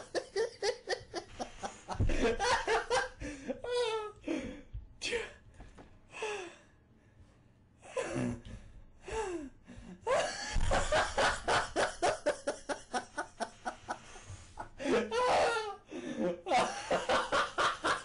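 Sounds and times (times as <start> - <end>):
person laughing hard: 0.0 - 4.2, 10.1 - 13.8, 14.6 - 18.0.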